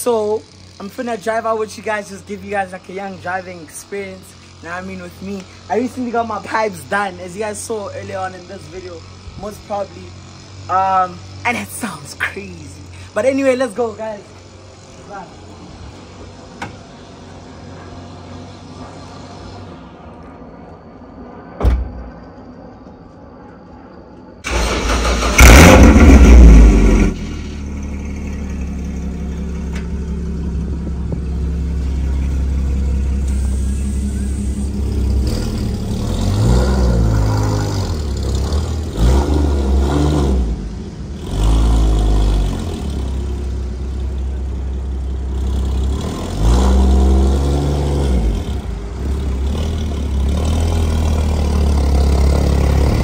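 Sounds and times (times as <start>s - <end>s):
car engine starting and revving: 24.4s - 53.0s.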